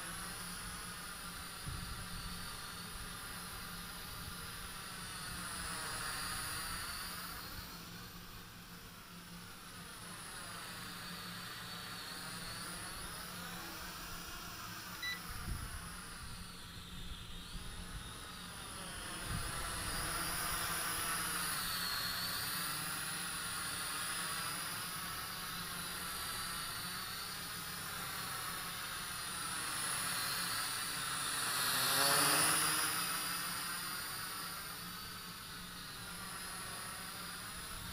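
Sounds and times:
drone propellers buzzing: 0:00.0 - 0:37.9.

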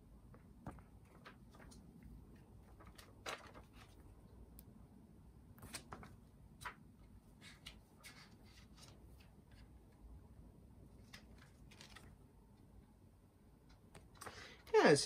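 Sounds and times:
paper rustling: 0:00.7 - 0:04.1, 0:05.6 - 0:09.7, 0:11.0 - 0:12.2.

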